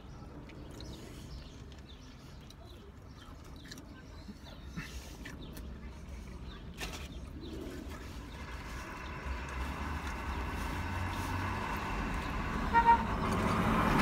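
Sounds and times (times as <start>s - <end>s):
truck engine and tyre noise: 5.6s - 14.0s
truck horn toot: 12.6s - 13.2s.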